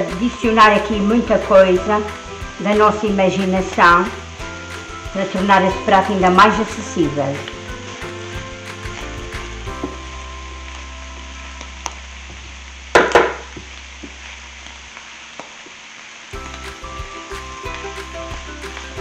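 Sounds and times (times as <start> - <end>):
tofu and vegetables sizzling: 0.0 - 19.0.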